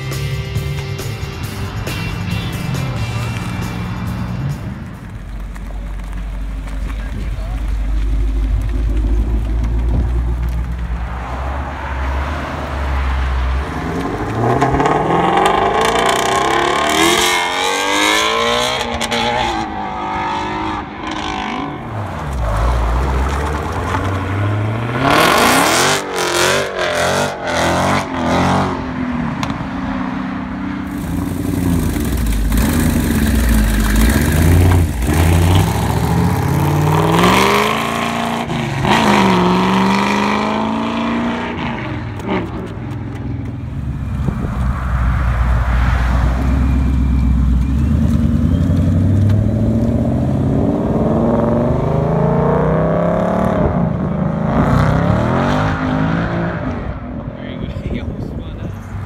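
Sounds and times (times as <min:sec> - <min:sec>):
car engine revving: 0:00.0 - 0:29.6, 0:30.4 - 0:57.3
car accelerating past: 0:08.2 - 0:57.2
car revving with gear changes: 0:13.3 - 0:29.6, 0:30.9 - 0:44.8, 0:46.4 - 0:57.3.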